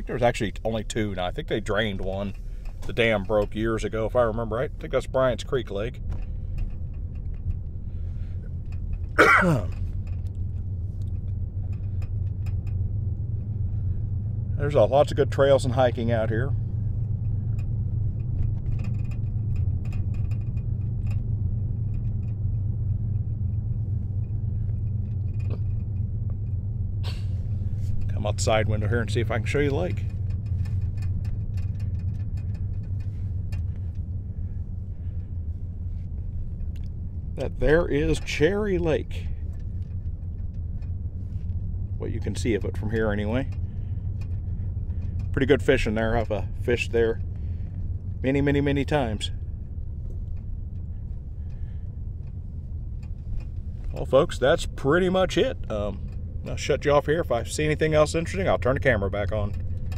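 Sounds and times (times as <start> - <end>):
car driving rumble from inside: 0.0 - 59.9
person clearing throat: 9.2 - 9.8.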